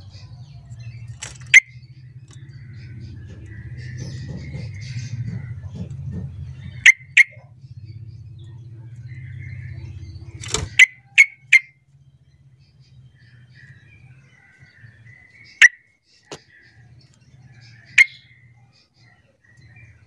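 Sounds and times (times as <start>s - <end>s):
low droning hum: 0.0s - 15.4s
bird call notes: 0.0s - 20.0s.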